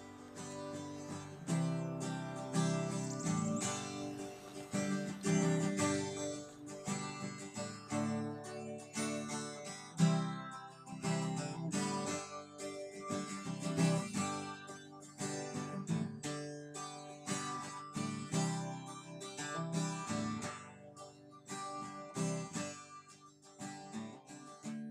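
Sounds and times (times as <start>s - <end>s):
acoustic guitar music: 0.0s - 24.9s.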